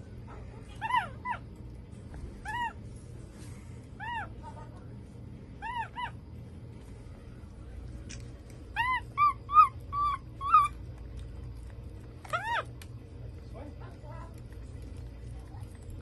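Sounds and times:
monkey calling: 0:05.6 - 0:06.2, 0:08.8 - 0:10.8.

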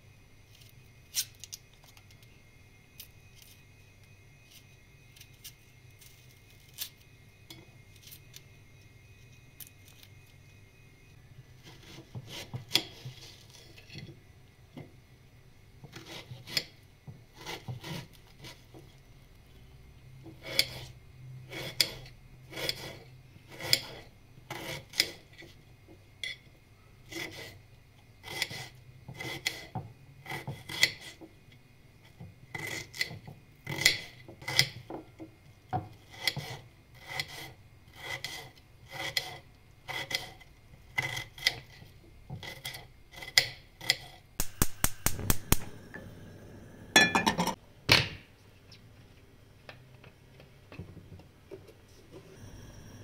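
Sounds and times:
knife slicing onion on plate: 0:28.2 - 0:31.2, 0:35.9 - 0:40.4, 0:42.4 - 0:45.8.

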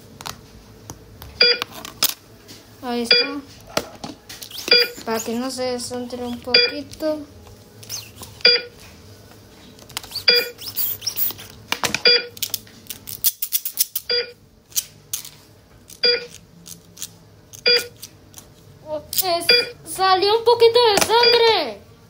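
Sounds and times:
heart monitor beep: 0:01.4 - 0:01.6, 0:03.1 - 0:03.4, 0:04.6 - 0:05.1, 0:06.4 - 0:06.8, 0:08.4 - 0:08.8, 0:10.2 - 0:10.7, 0:12.0 - 0:12.3, 0:14.1 - 0:14.4, 0:16.0 - 0:16.4, 0:17.7 - 0:17.9, 0:19.5 - 0:19.8, 0:21.2 - 0:21.5
toy tools clicking and rattling: 0:12.4 - 0:14.1.

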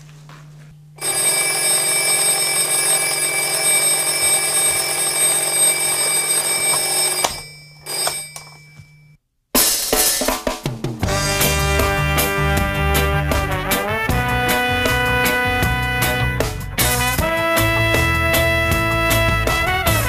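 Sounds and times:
bell ringing loudly: 0:01.0 - 0:09.2
band drums and music: 0:09.6 - 0:20.0.

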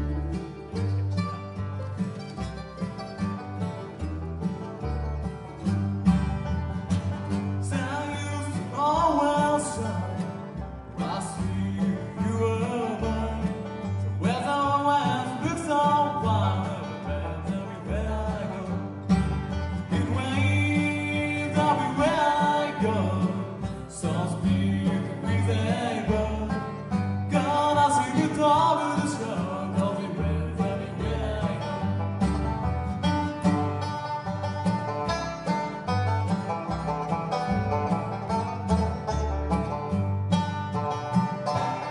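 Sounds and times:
bluegrass band playing: 0:00.0 - 0:41.9
person singing: 0:07.6 - 0:18.9, 0:19.8 - 0:32.1.

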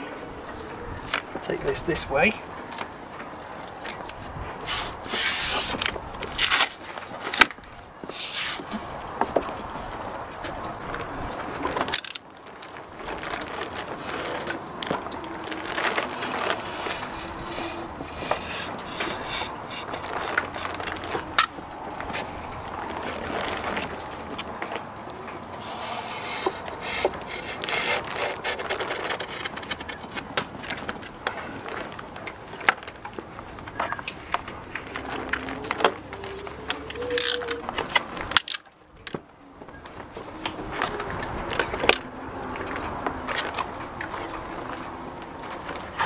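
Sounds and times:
knife blade scraping vinyl: 0:04.6 - 0:06.7, 0:16.0 - 0:21.3, 0:25.6 - 0:30.3.

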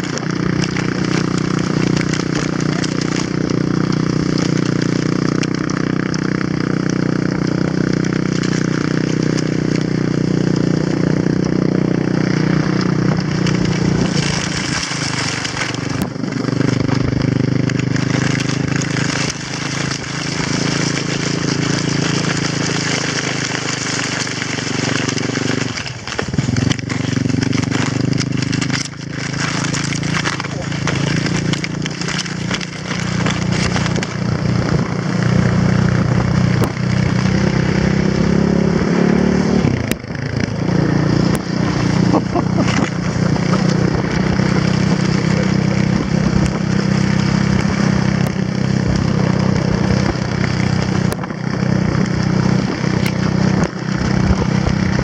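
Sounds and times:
quad bike engine running: 0:00.0 - 0:55.0
sled hissing over snow: 0:11.8 - 0:37.0.

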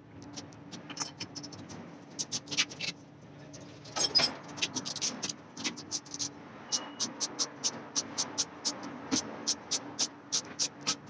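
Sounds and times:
metallic clinks of bolts and parts: 0:00.9 - 0:01.4, 0:03.8 - 0:04.6.

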